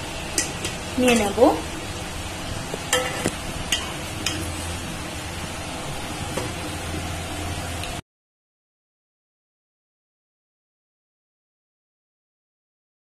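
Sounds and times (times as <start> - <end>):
spoon clinking against pot: 2.9 - 4.5.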